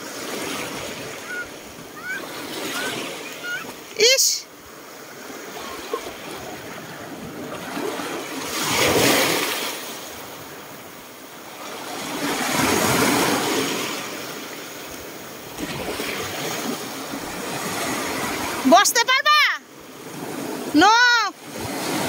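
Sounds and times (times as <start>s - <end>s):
waves washing over pebbles: 4.7s - 18.7s.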